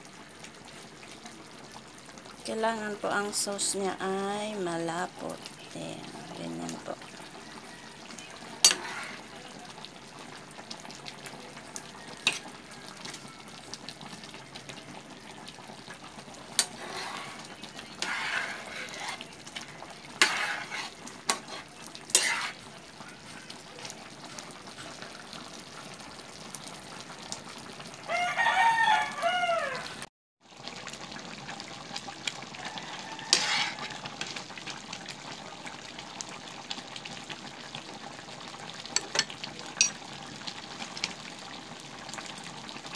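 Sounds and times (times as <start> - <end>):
sauce simmering with hiss: 0.0 - 42.9
rooster crowing: 7.2 - 9.3, 11.7 - 15.9, 28.0 - 30.1, 32.4 - 34.3.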